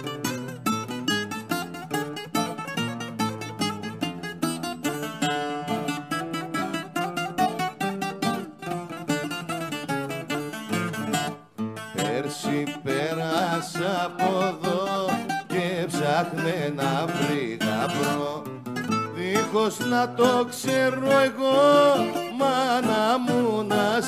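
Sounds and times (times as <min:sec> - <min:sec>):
acoustic guitar: 0:00.0 - 0:24.0
bouzouki: 0:00.0 - 0:24.0
man singing: 0:11.9 - 0:24.0.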